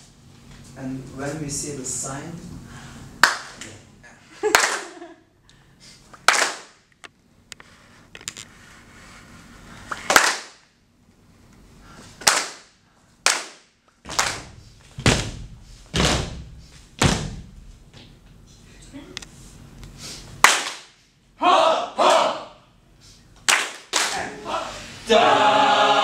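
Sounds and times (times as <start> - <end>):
group clapping in unison: 3.2 - 3.7, 4.4 - 5.1, 6.2 - 6.8, 10.0 - 10.6, 12.2 - 15.4, 20.4 - 21.0, 22.0 - 22.4, 23.4 - 24.6.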